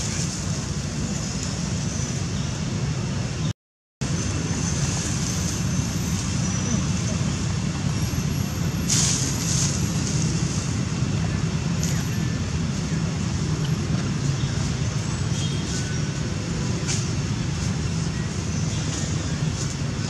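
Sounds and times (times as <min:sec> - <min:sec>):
hissing rustles: 0:04.3 - 0:20.0.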